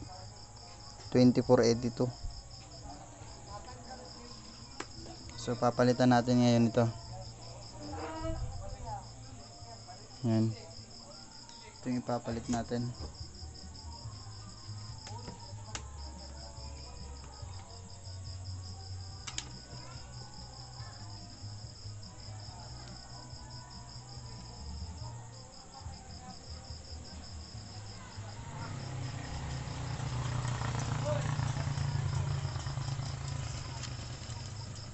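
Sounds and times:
cricket chirping: 0:00.0 - 0:34.9
small clicks: 0:19.2 - 0:19.5.

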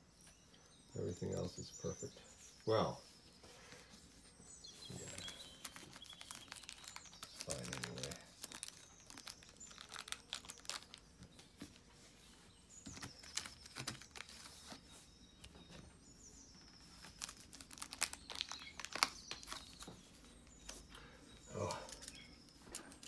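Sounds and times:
plastic shrink-wrap crinkling: 0:04.8 - 0:11.8, 0:12.8 - 0:14.8, 0:16.6 - 0:20.0.

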